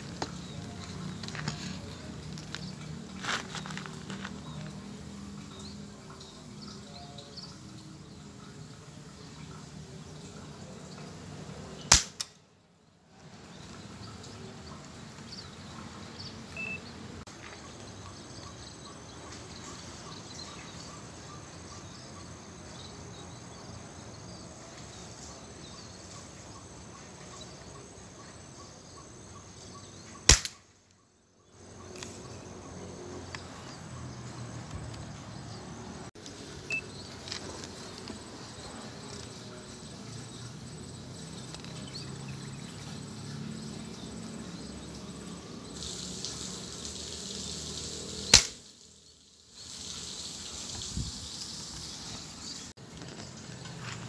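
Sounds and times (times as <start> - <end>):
insects chirping: 0.0 - 11.9, 13.3 - 54.0
air rifle shot: 11.9 - 12.4, 30.3 - 30.6, 48.3 - 48.6.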